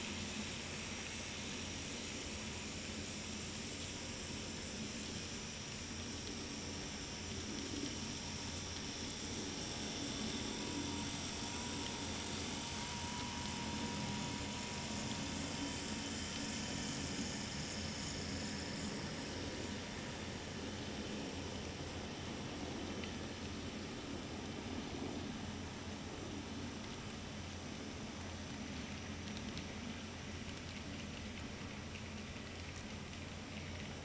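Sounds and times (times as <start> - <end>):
small electric motor whir: 0.0 - 27.0.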